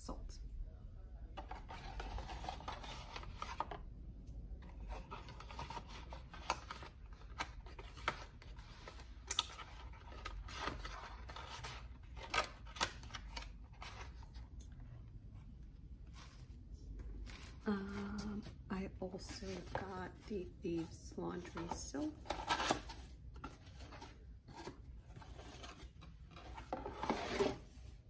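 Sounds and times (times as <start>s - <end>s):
cardboard packaging rustling: 16.0s - 28.0s.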